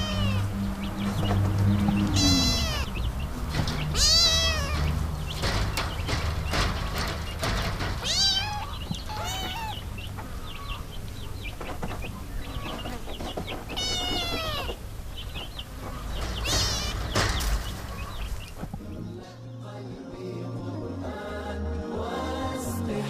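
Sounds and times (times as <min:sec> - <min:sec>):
kittens meowing: 0:00.0 - 0:00.6, 0:01.8 - 0:05.1, 0:08.0 - 0:10.9, 0:13.7 - 0:14.8, 0:15.5 - 0:17.3
faint high squeaks: 0:01.8 - 0:03.0, 0:03.7 - 0:10.9, 0:11.9 - 0:14.8, 0:15.4 - 0:18.7.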